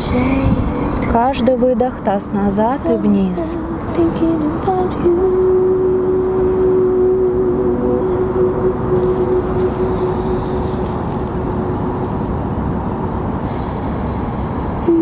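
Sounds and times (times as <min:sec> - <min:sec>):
low outdoor rumble: 0:00.0 - 0:15.0
faint held tone: 0:05.1 - 0:12.6.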